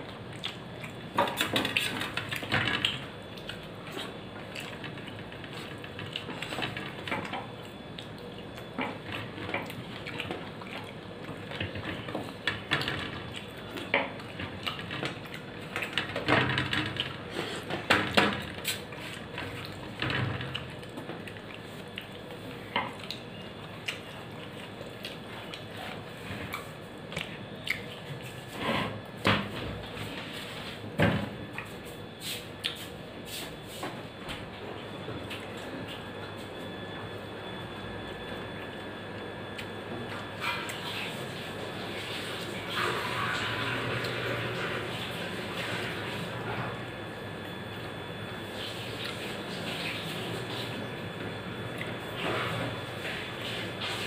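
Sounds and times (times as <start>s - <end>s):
wet chewing: 0.0s - 2.0s, 7.3s - 12.4s, 20.5s - 28.4s.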